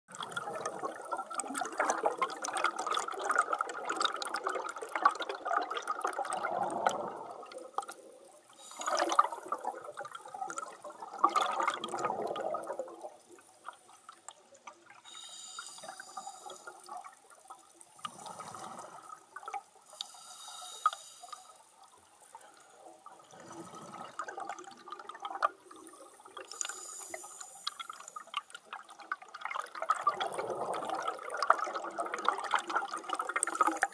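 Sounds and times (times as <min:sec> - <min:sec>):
exhaled bubbles gurgling underwater: 0:00.1 - 0:33.9
hissing regulator inhalations: 0:08.6 - 0:09.2, 0:15.1 - 0:16.9, 0:19.9 - 0:21.7, 0:26.5 - 0:28.2.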